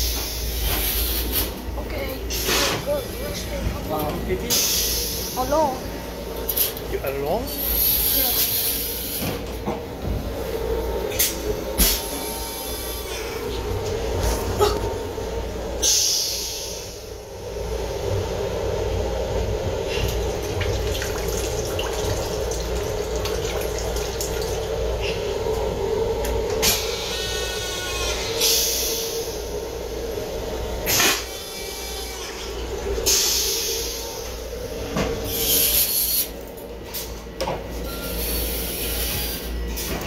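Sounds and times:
train rumble and hum: 0:00.0 - 0:40.0
toilet flushing water rush: 0:16.5 - 0:27.5.

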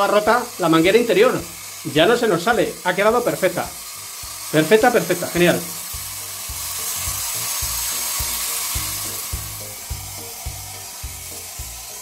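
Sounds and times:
shower head spraying water: 0:00.0 - 0:12.0
background music with beat: 0:04.1 - 0:12.0.

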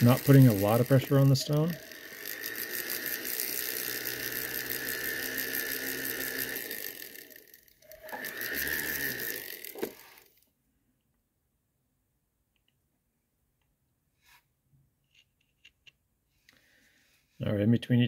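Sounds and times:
rotary polishing tool whine: 0:00.0 - 0:10.4.

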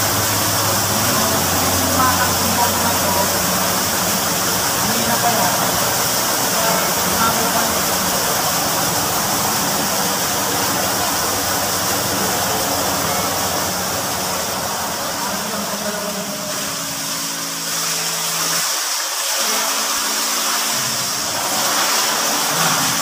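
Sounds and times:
water gushing into tank: 0:00.0 - 0:23.0.

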